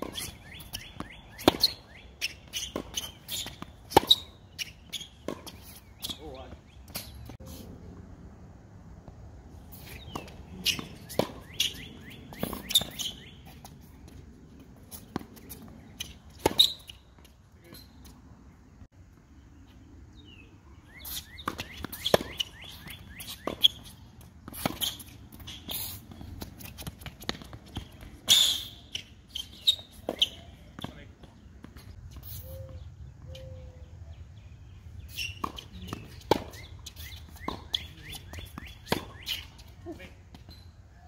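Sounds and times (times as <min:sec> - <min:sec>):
tennis balls bouncing on court: 0:00.0 - 0:07.3, 0:09.9 - 0:18.2, 0:21.0 - 0:32.1, 0:35.1 - 0:40.7
tennis balls struck by rackets: 0:00.0 - 0:07.4, 0:09.9 - 0:17.3, 0:21.2 - 0:29.0, 0:35.3 - 0:39.7.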